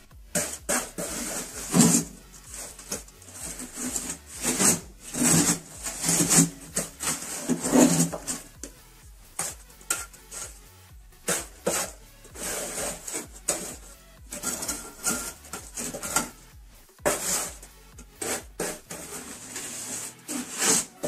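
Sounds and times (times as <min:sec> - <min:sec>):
scraping strokes on rough surface: 0:00.0 - 0:10.6, 0:11.2 - 0:21.0.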